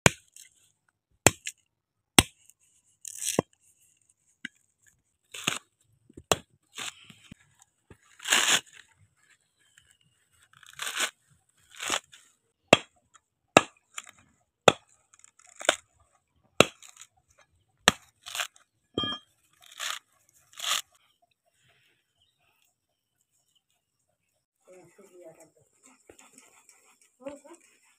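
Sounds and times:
blade chopping coconut husk: 0.0 - 0.5, 1.2 - 1.6, 2.2 - 2.5, 5.3 - 7.0, 8.0 - 8.8, 10.6 - 12.1, 12.7 - 15.9, 16.6 - 17.1, 17.8 - 18.6, 19.6 - 20.9
husk ripping by hand: 8.0 - 9.0, 10.5 - 12.3, 19.5 - 21.0.

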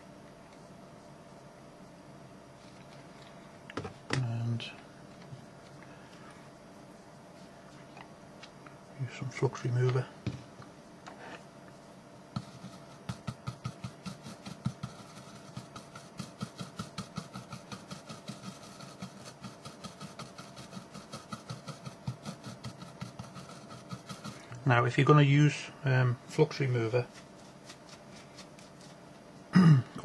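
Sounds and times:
stiff brush scrubbing: 12.4 - 24.6, 26.5 - 29.2.

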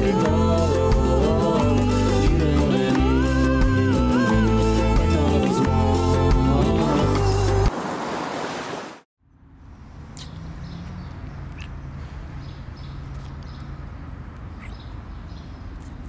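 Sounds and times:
lip smacks of kissing: 10.2 - 10.4.

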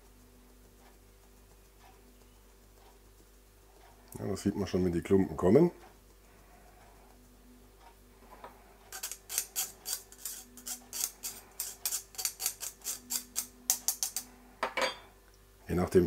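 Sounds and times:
spoon scraping wire-mesh sieve: 8.9 - 14.3.

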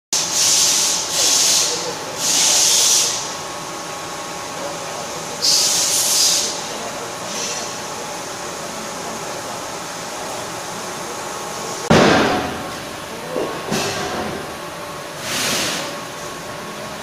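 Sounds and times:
loud hissing blasts: 0.2 - 3.3, 5.4 - 6.6, 15.2 - 16.0.

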